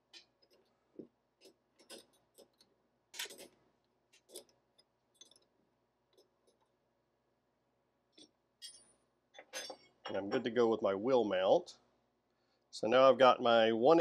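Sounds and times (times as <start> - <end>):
small metal clicks: 1.4 - 5.5.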